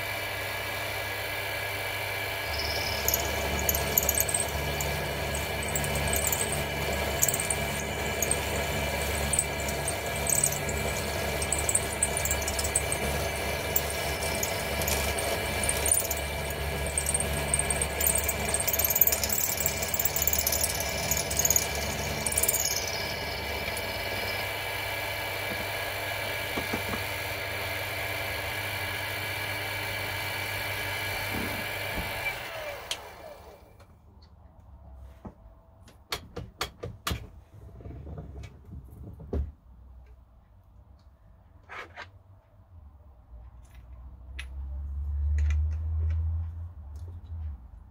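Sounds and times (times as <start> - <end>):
milling machine motor hum: 2.4 - 24.6
high-pitched metal cutting chatter: 2.5 - 24.5.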